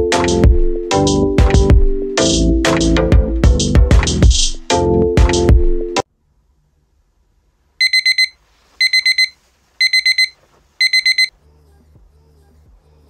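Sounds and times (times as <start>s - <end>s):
alarm clock beeping: 7.8s - 11.3s.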